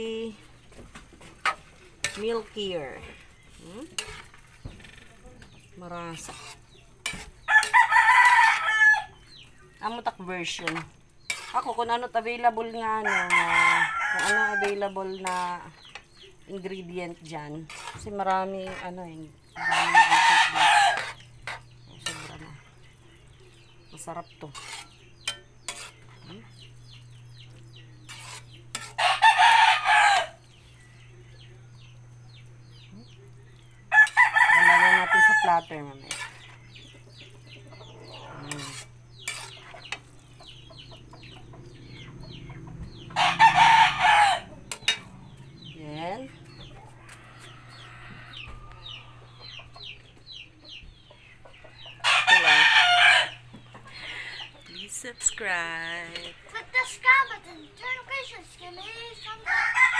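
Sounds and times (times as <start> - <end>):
metal spatula scraping a wok: 1.3 - 22.7, 23.9 - 26.7, 27.8 - 30.3, 34.0 - 37.0, 37.8 - 40.2, 42.9 - 45.8
rooster crowing: 7.5 - 9.2, 13.0 - 14.8, 19.6 - 21.1, 29.0 - 30.4, 33.9 - 35.6, 43.1 - 45.0, 46.8 - 49.4, 52.0 - 53.4, 59.4 - 59.9
chicks peeping: 24.9 - 55.4.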